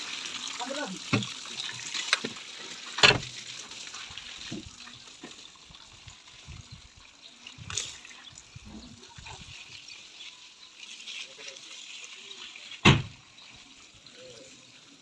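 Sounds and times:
hose water spraying on metal: 0.0 - 15.0.

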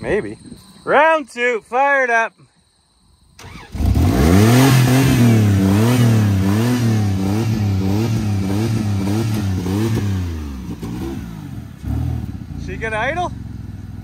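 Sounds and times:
pickup engine hunting idle: 5.0 - 14.0.

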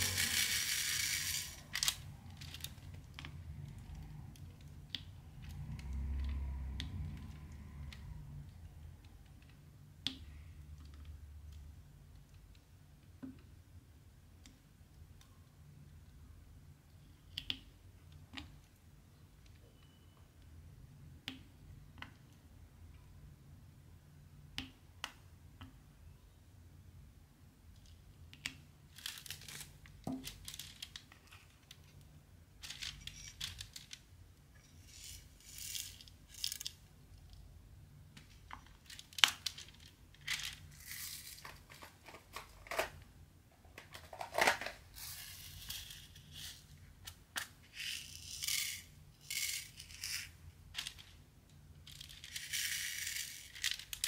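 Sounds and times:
plastic beads rattling in box: 0.0 - 3.9, 28.9 - 31.8, 32.6 - 36.9, 38.3 - 43.0, 43.8 - 46.7, 47.6 - 51.2, 51.8 - 54.0.

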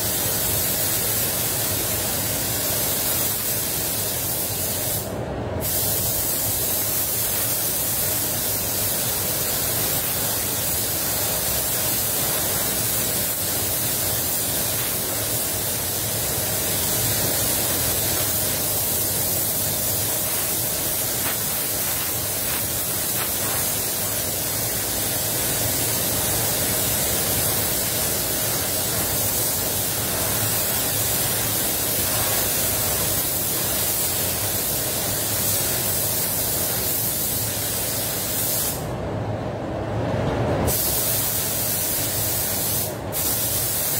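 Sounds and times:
spray gun air hiss: 0.0 - 38.9, 40.7 - 43.9.

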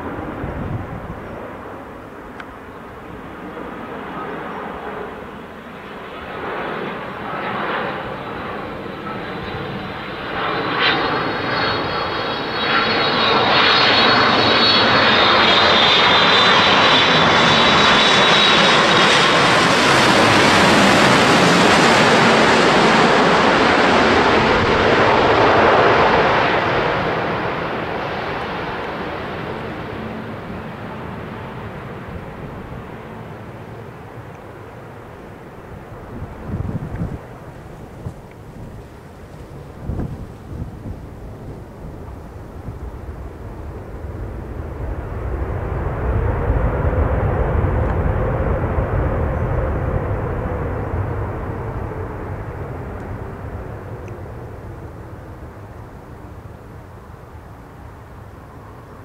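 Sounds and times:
jet engine roar: 0.0 - 59.0
high engine whine: 6.4 - 59.0.

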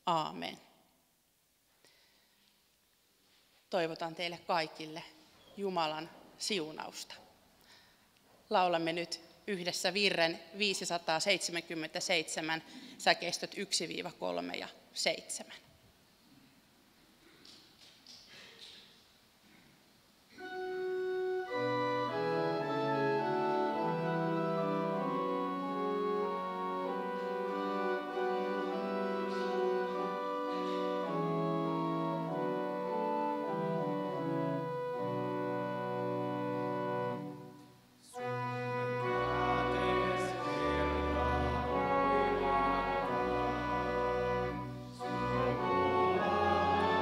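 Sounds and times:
church organ playing hymn: 20.4 - 47.0.

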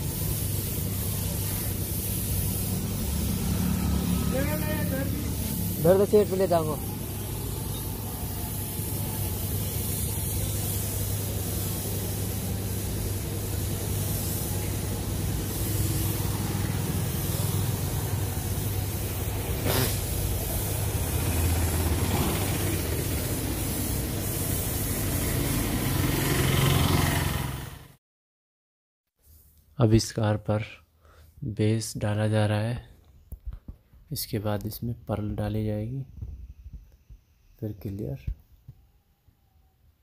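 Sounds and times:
spray gun hissing: 0.0 - 26.7.

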